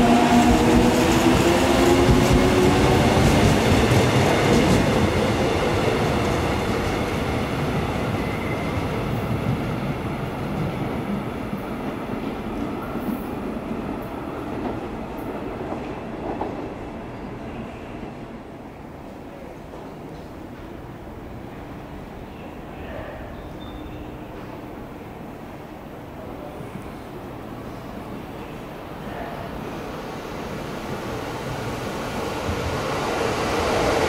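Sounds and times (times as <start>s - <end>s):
train wheels rumbling on track: 0.0s - 18.2s.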